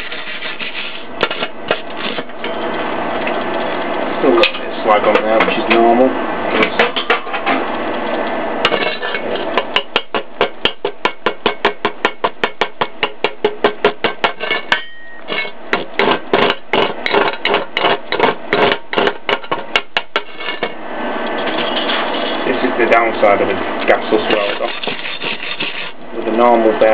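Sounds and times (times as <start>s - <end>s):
hammer strikes on steel: 9.6s - 20.8s.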